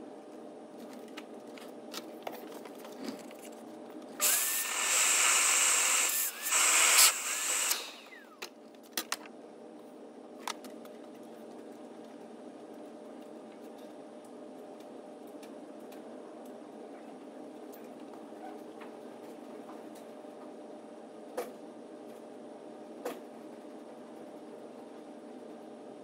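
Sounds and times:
vacuum motor running: 4.2s - 8.5s.

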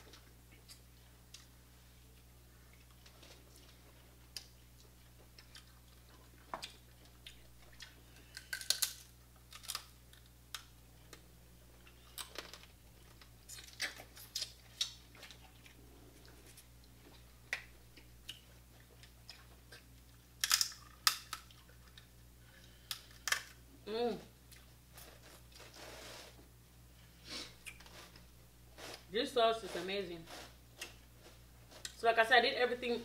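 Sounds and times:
crab shells cracking: 6.5s - 10.7s, 19.8s - 22.1s, 22.7s - 23.6s.

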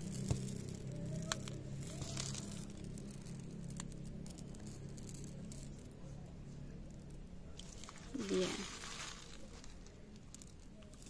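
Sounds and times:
pebbles pattering: 0.0s - 11.0s.

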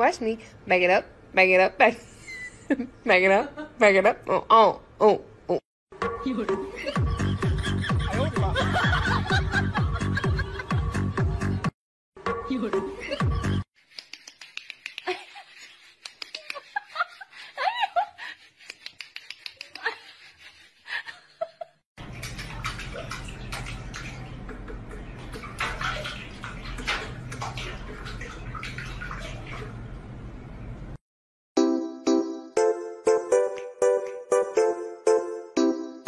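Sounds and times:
water splashing: 22.0s - 30.1s.

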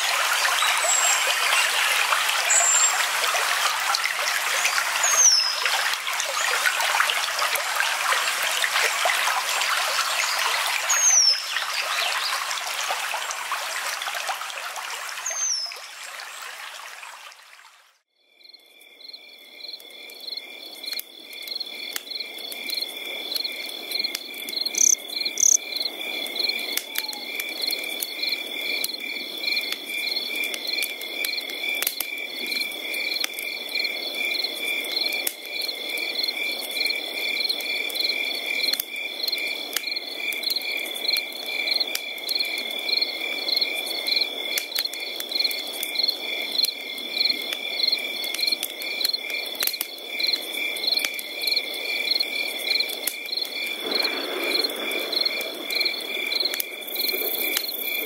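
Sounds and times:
insects chirping: 18.3s - 58.0s.

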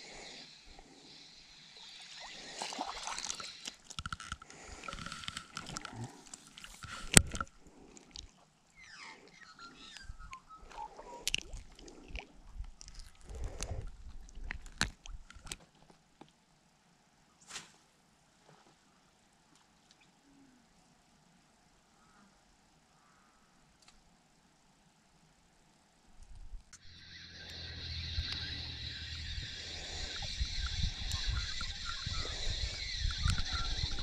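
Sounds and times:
water splashing: 1.8s - 5.6s
rustling and clicks: 3.3s - 8.3s.

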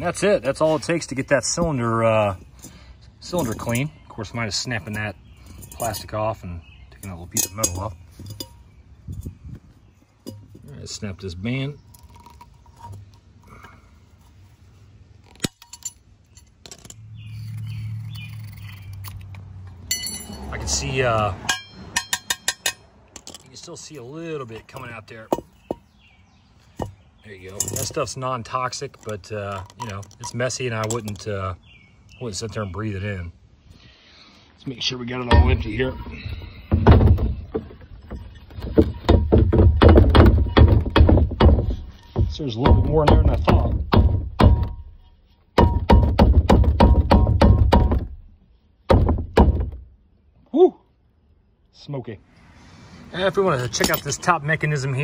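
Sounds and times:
sharp knocks on metal cylinder: 21.5s - 22.8s, 42.6s - 44.9s, 45.6s - 48.2s.

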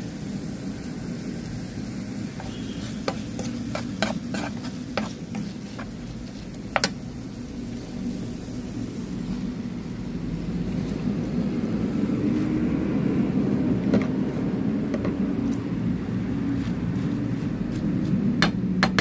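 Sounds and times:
vegetables sauteing in a pan: 0.0s - 17.8s
spatula tapping on a pan: 2.4s - 6.0s, 6.7s - 7.0s.

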